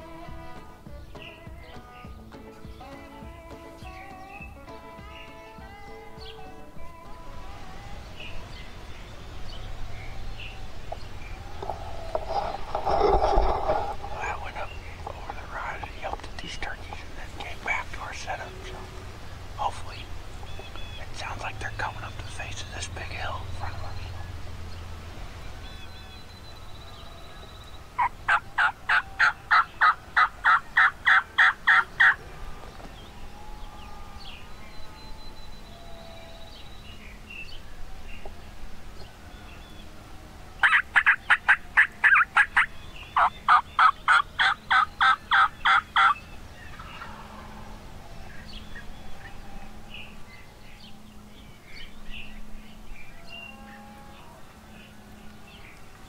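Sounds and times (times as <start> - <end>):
turkey call hen yelps: 28.0 - 32.2, 40.6 - 46.2.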